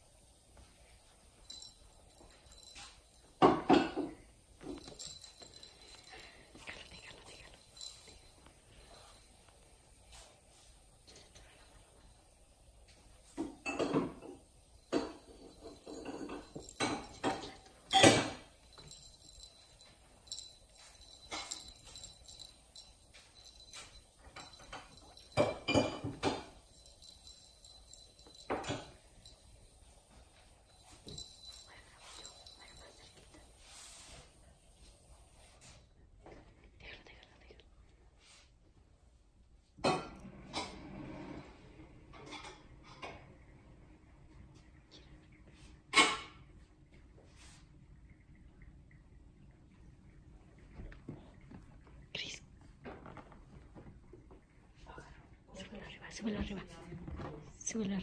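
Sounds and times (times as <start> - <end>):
small bells jingling: 0.7 - 35.8
scratching and rustling: 4.6 - 12.0, 12.9 - 35.8.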